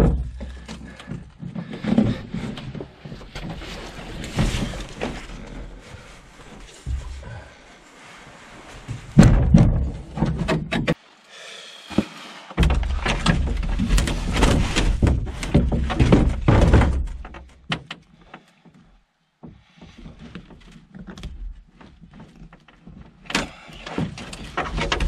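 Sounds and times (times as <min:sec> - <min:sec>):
hollow thunks on canoe hull: 0:09.0 - 0:11.0, 0:11.9 - 0:17.9.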